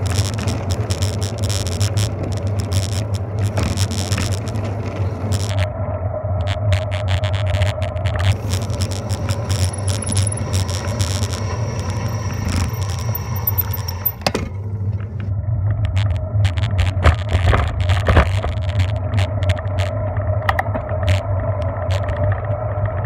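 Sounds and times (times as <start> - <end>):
bicycle clicks and rattles: 0.0 - 5.7, 6.4 - 21.2
wind and road noise: 0.0 - 23.0
high hiss: 8.2 - 14.2.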